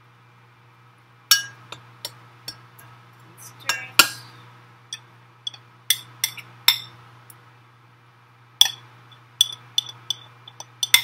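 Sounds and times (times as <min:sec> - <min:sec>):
utensil clinking on glass bowl: 0:09.4 - 0:11.0.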